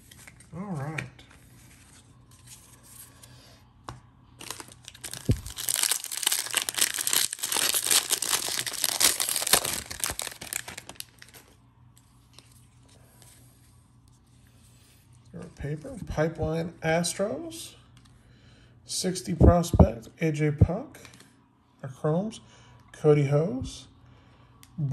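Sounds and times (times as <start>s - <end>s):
cards rustling: 0.0s - 3.4s, 4.4s - 13.4s
wrapper tearing and crinkling: 4.4s - 11.5s.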